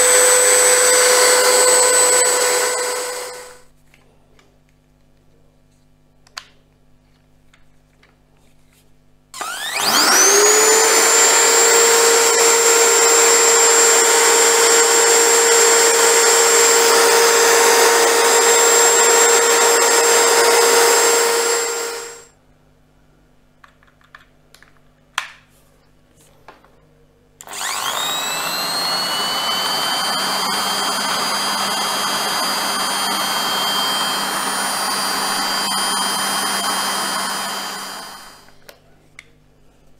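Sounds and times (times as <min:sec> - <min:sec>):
drill motor whining: 0:00.0 - 0:03.6, 0:09.4 - 0:22.3, 0:27.4 - 0:38.6.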